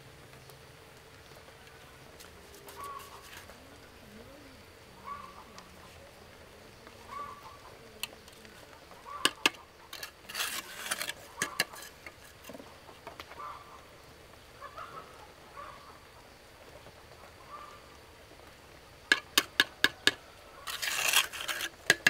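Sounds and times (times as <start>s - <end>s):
fowl calling: 1.7s - 6.1s, 6.8s - 13.9s, 14.5s - 16.2s, 17.2s - 18.0s
rustling scrape: 2.4s - 3.6s, 9.3s - 12.7s, 20.0s - 22.0s
sharp knocks: 19.1s - 20.2s.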